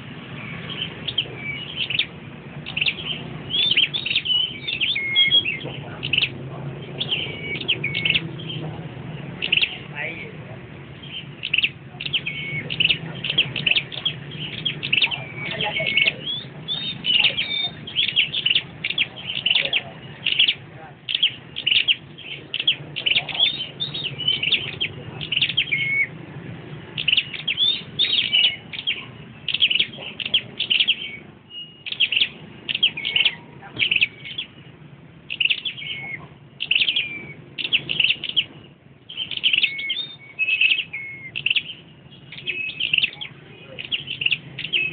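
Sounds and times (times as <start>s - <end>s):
songbirds chirping and trilling: 0.0s - 44.9s.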